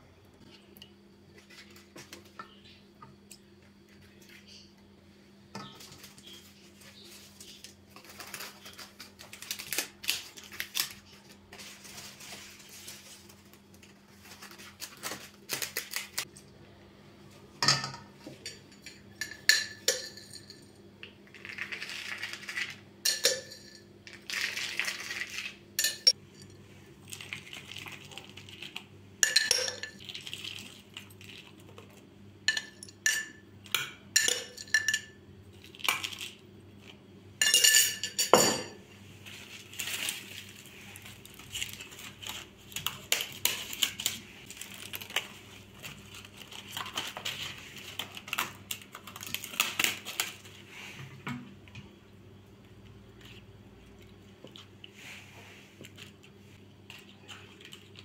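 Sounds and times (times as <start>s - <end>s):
thin sheets rustling: 10.6s - 15.4s
metal spoon clinking on glass dish: 25.8s - 26.2s.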